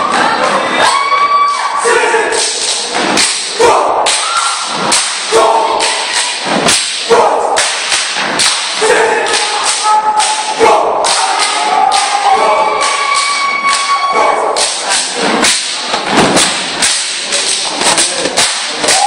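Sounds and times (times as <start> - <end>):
body slaps: 2.4 - 3.5, 4.1 - 12.2, 14.6 - 19.0
hand claps: 2.4 - 19.0.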